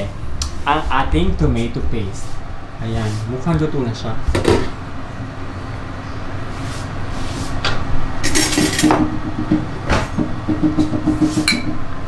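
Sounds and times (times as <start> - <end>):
cookware knocking and clinking: 10.6 - 11.8.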